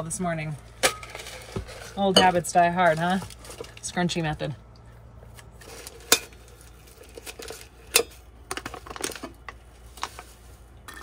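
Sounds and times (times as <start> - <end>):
coffee bag crinkling: 1.1 - 4.0
paper filter rustling: 1.1 - 4.4.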